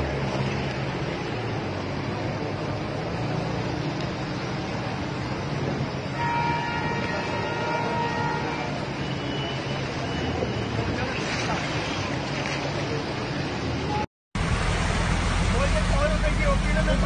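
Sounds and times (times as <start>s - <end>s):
water wash from traffic: 0.0s - 17.0s
vehicle horn: 6.1s - 8.9s
vehicle engines running: 14.4s - 17.0s.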